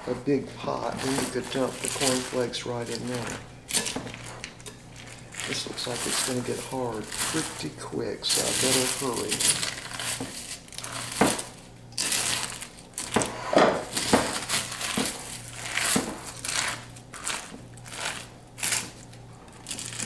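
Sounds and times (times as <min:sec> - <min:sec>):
spoon stirring crunchy corn flakes: 0:00.8 - 0:13.3, 0:13.9 - 0:19.0, 0:19.6 - 0:20.0.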